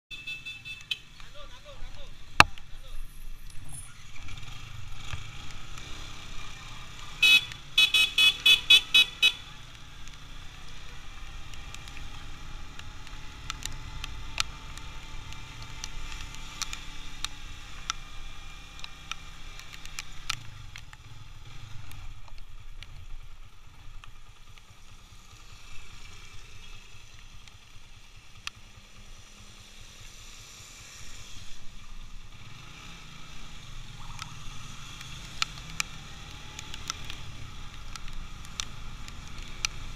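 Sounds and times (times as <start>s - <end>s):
motorcycle engine rumble: 0.1s - 39.9s
rapid horn toots: 7.2s - 9.4s.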